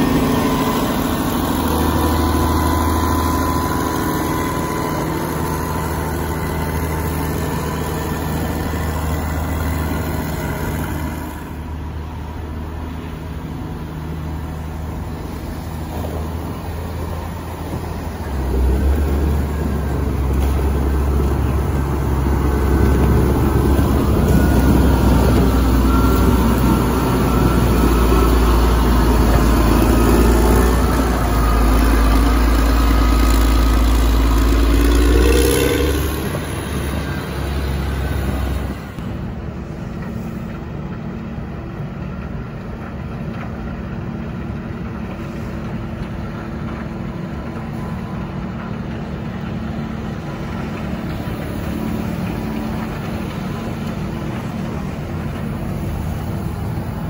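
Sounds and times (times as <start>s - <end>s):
diesel engine revving: 0.0s - 57.0s
steady engine hum: 0.0s - 57.0s.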